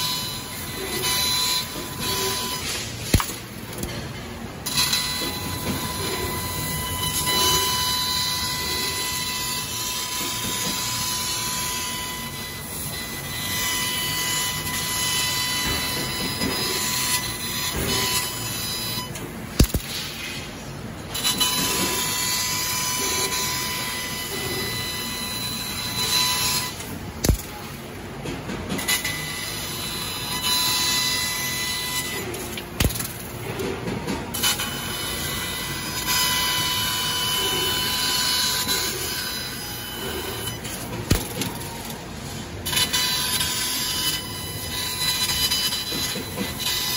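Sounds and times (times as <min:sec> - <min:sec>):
laser cutter hiss and whine: 0:00.0 - 0:04.0, 0:04.6 - 0:27.9, 0:28.7 - 0:46.9
sharp click: 0:19.6 - 0:20.1.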